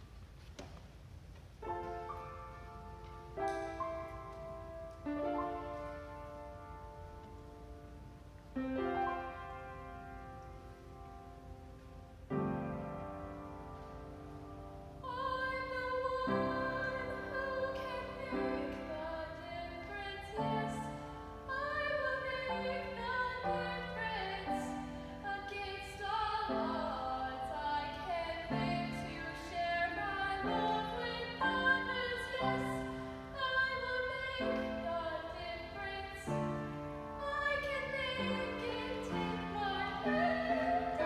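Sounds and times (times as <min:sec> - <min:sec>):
upright piano: 0:01.6 - 0:41.0
youth choir singing: 0:37.3 - 0:41.0.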